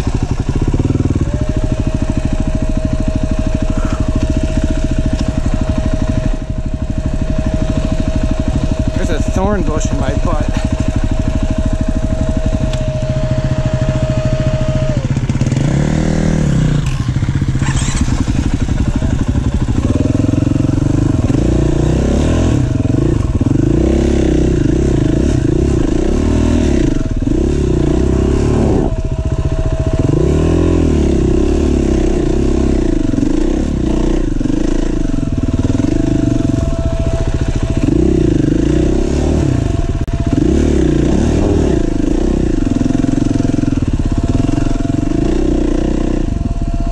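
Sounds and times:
motorcycle engine revving: 0.0s - 46.9s.

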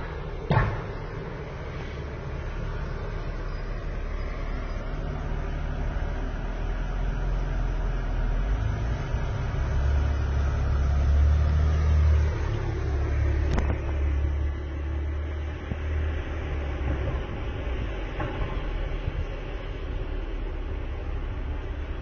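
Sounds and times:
car engine low rumble: 0.0s - 22.0s.

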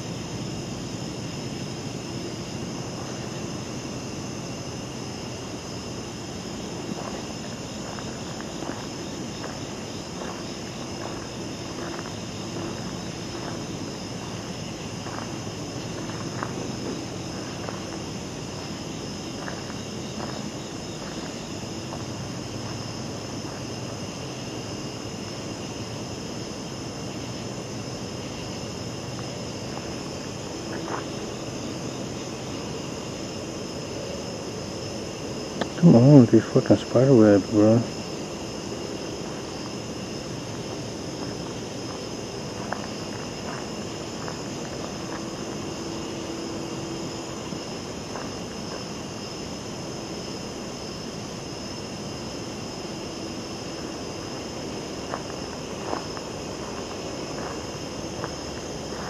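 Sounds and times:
low steady hum: 0.0s - 59.0s
night insects droning: 0.0s - 59.0s
footsteps on leaf litter: 6.9s - 18.7s.

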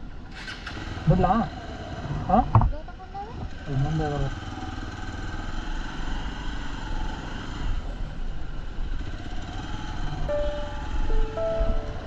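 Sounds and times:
road and wind noise: 0.0s - 12.0s
background music: 10.3s - 12.0s.

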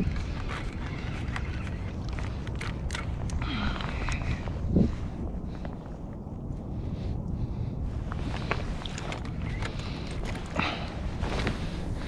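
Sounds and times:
wind buffeting microphone: 0.0s - 12.0s
fishing tackle clicking: 0.5s - 3.4s.

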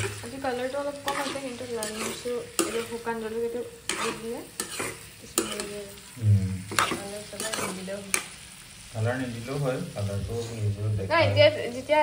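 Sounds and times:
metal spoon scraping a pan: 0.0s - 8.8s
oil sizzling: 0.0s - 12.0s.

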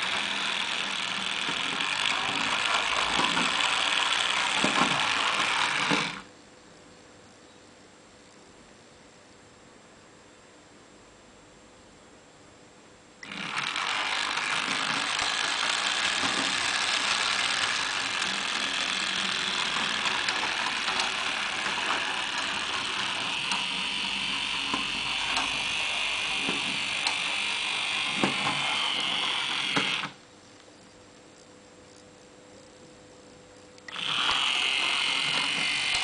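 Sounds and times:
model streetcar motor whirring: 0.0s - 6.3s, 13.2s - 30.2s, 33.9s - 36.0s
scattered clicks: 13.2s - 32.8s.

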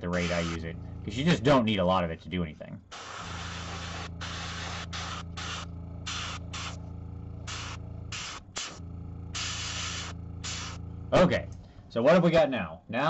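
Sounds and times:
low motor hum: 0.0s - 12.3s
airbrush spraying hiss: 2.9s - 6.8s, 7.5s - 8.8s, 9.4s - 10.8s.

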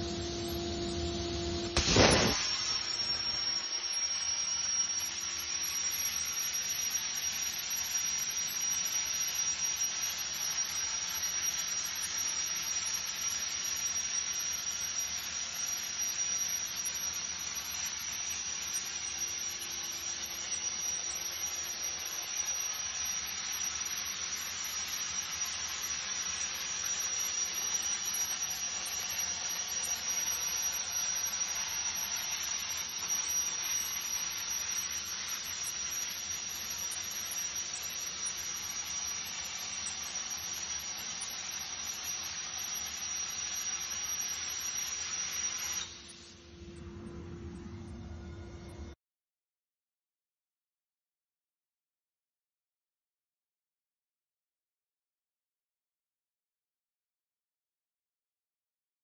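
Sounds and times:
plasma torch hissing: 0.0s - 46.4s
high-pitched whine: 0.0s - 49.0s.

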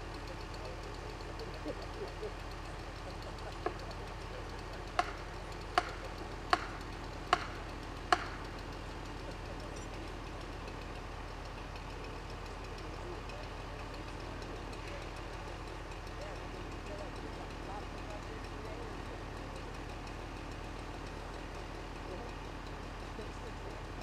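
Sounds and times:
truck engine idling: 0.0s - 24.0s
sharp knocks: 5.8s - 8.4s.

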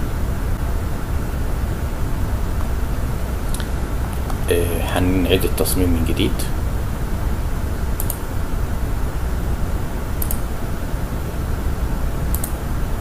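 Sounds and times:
room noise hum and hiss: 0.0s - 13.0s
mouse clicks: 8.0s - 8.2s, 10.2s - 10.4s, 12.3s - 12.6s.

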